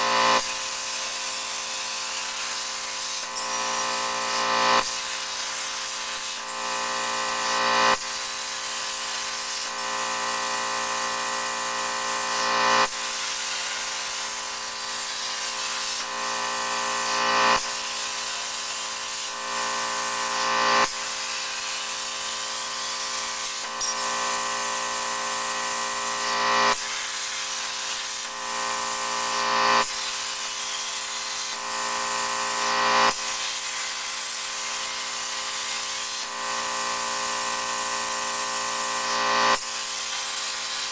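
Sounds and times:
plasma cutter whining hiss: 0:00.0 - 0:40.9.

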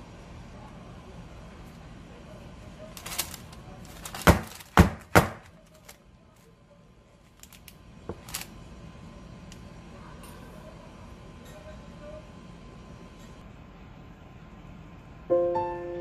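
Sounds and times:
parchment paper rustling: 0:02.7 - 0:06.5.

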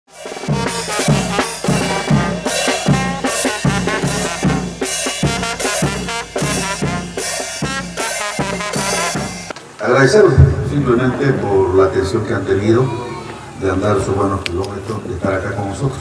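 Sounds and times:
brass band playing: 0:00.1 - 0:09.5
steady drum beat: 0:00.1 - 0:09.5.

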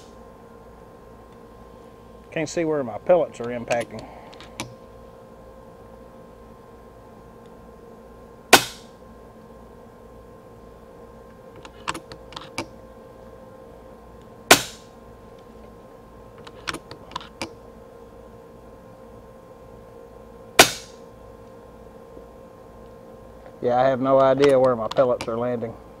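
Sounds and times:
air rifle shots: 0:08.5 - 0:08.9, 0:14.5 - 0:14.9, 0:20.6 - 0:21.0.

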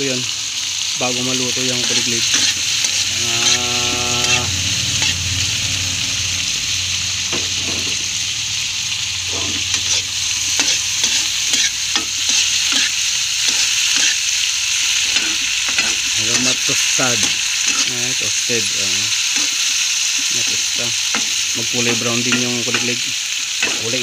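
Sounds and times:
crickets sizzling in hot oil: 0:00.0 - 0:24.0
metal spatula scraping pan: 0:09.2 - 0:14.2, 0:15.0 - 0:17.9.

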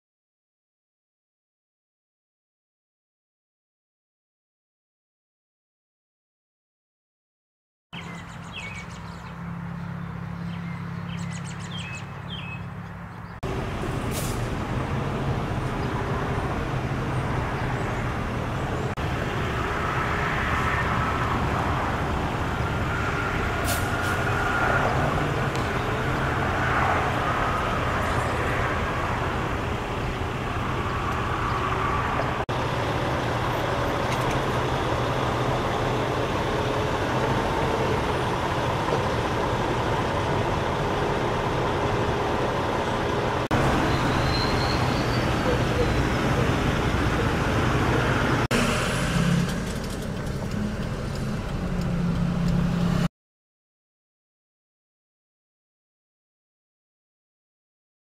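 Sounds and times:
birds chirping: 0:08.0 - 0:14.2, 0:14.8 - 0:19.3, 0:24.8 - 0:26.6, 0:42.6 - 0:47.4
heavy vehicle engines running: 0:08.0 - 0:53.1.

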